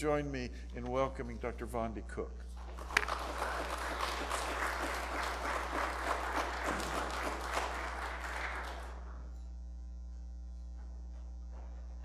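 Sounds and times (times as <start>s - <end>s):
low electrical hum: 0.0s - 12.0s
congregation applauding: 2.6s - 9.3s.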